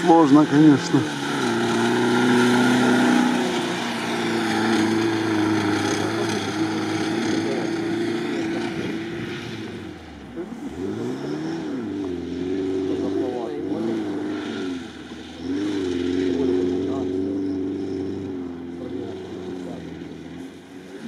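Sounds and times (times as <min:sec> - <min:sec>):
vehicle engine revving under load: 0:00.0 - 0:21.0.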